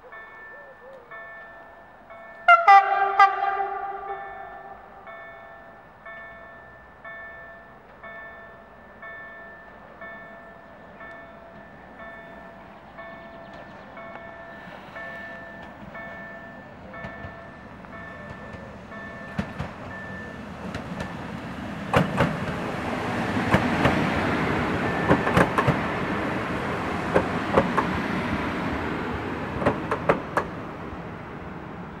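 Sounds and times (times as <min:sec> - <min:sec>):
level crossing warning bell: 0:00.0 - 0:21.8, 0:22.7 - 0:27.5
train wheels rushing on rails: 0:10.9 - 0:32.0
wheels clicking over rail joints: 0:15.5 - 0:28.3, 0:28.9 - 0:30.6.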